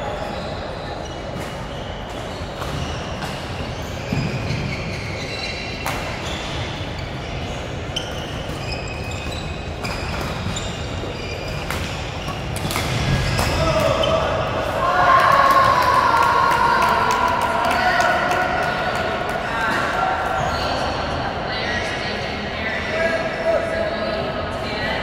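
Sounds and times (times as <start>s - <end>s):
shoe squeaks on court floor: 0.0s - 14.3s, 20.4s - 20.9s
steady hall noise: 0.0s - 25.0s.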